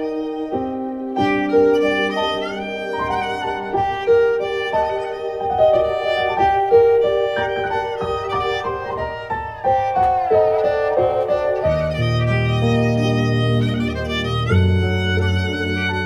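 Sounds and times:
bowed fiddle melody: 0.0s - 16.0s
electronic keyboard sustained notes: 0.0s - 16.0s.

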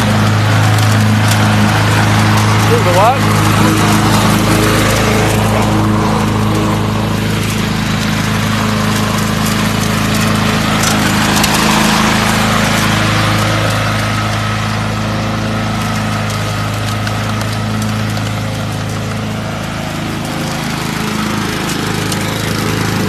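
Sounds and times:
lawn mower engine running: 0.0s - 23.0s.

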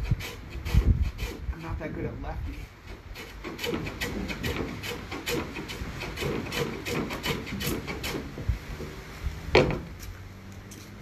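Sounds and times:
block plane shaving wood: 0.0s - 1.7s, 3.0s - 8.3s.

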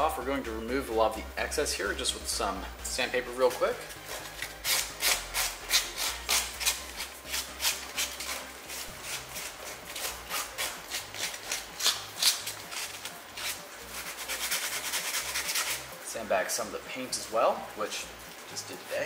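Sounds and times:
hand sanding wood: 4.4s - 16.0s.

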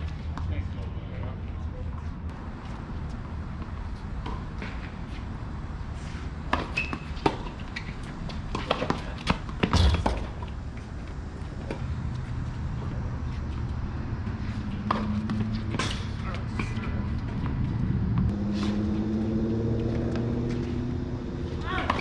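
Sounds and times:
rackets striking tennis ball: 6.5s - 10.5s, 14.8s - 17.6s.

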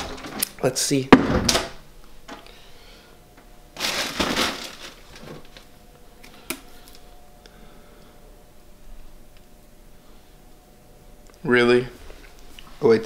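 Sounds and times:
faint steady hum: 0.0s - 13.0s
food packages rustling: 3.7s - 7.1s.

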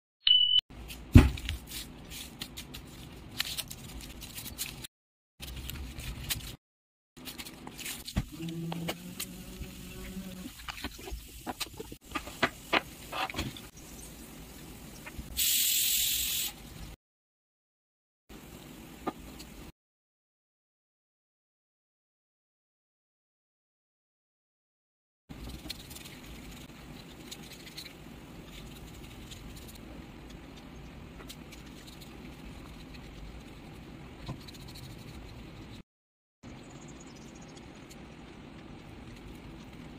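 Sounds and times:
loud steady hiss: 15.4s - 16.6s
paintbrush on dry husk rustling: 25.3s - 30.6s, 31.3s - 35.8s.

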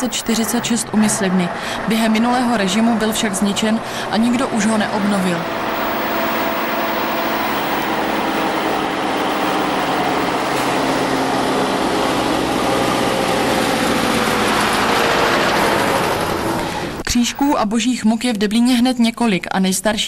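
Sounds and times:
tractor diesel engine running: 0.0s - 1.2s, 3.5s - 17.5s.

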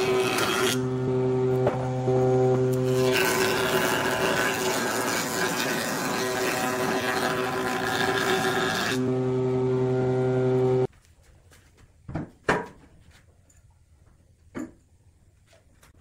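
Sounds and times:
tool grinding on spinning wood: 0.0s - 10.9s
wood lathe motor humming: 0.0s - 10.9s.

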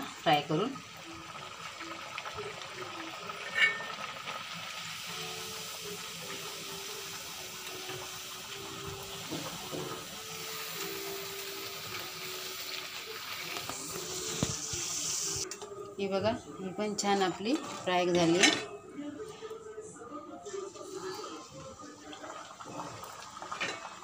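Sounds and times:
oil sizzling while deep-frying: 0.0s - 15.6s, 20.6s - 24.0s.

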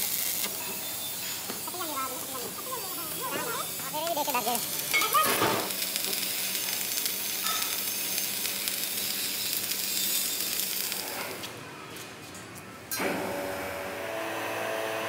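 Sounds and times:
sizzling crackle: 0.0s - 11.6s.

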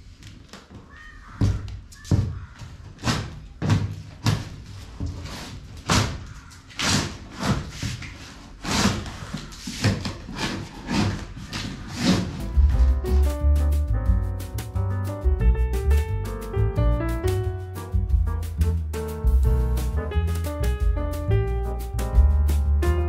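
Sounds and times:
cardboard flaps thumping: 0.6s - 13.4s.

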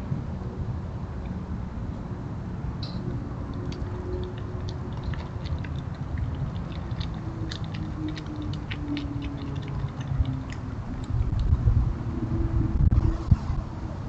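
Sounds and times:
steady low rumble: 0.0s - 14.0s
animal chewing food crunching: 3.5s - 11.5s.

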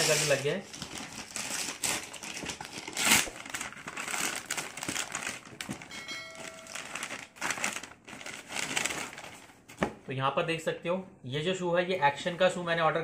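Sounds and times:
paper bag tearing and crumpling: 0.0s - 5.9s, 6.6s - 9.6s
bell-like chime: 5.9s - 7.0s.

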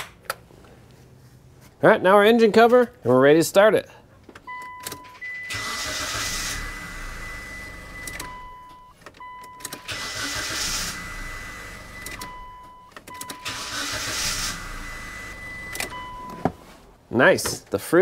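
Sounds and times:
car engine starting and running: 4.4s - 16.6s.

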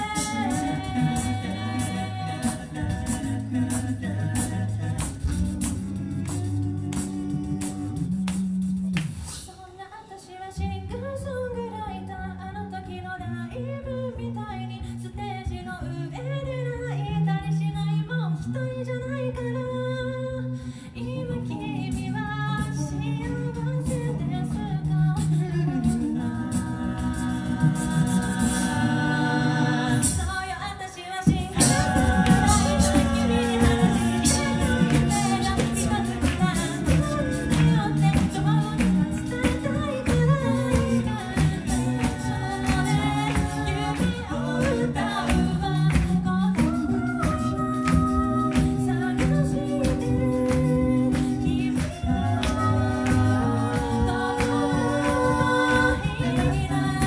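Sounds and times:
vocal percussion clicking: 0.0s - 9.6s, 31.3s - 57.0s
a cappella group singing: 0.0s - 57.0s.

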